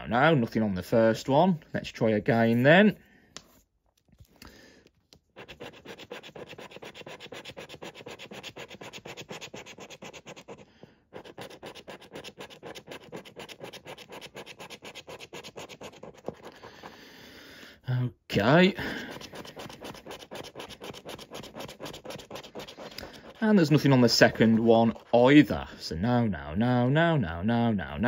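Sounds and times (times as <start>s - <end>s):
scratchcard being scratched: 5.3s - 16.9s, 18.9s - 25.4s.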